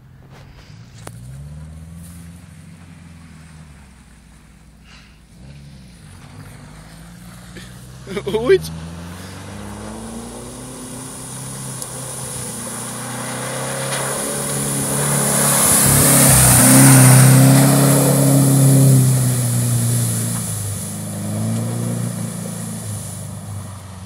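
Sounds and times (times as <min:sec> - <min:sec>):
vehicle engine driving past: 0:00.0 - 0:24.0
tyre hiss on wet track: 0:09.2 - 0:24.0.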